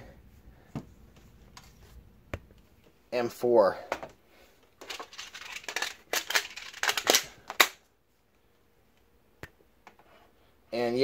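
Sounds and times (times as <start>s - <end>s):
magazine scraping and rattling: 4.8s - 7.8s.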